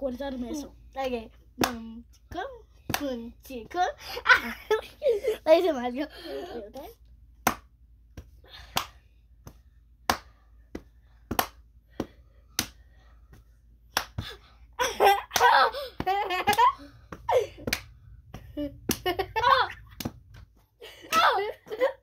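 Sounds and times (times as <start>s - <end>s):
children laughing: 4.0s - 5.5s, 14.8s - 17.7s, 18.5s - 20.0s, 20.8s - 22.0s
hands clapping: 7.4s - 10.4s, 11.3s - 12.8s, 13.9s - 14.4s, 15.3s - 21.8s.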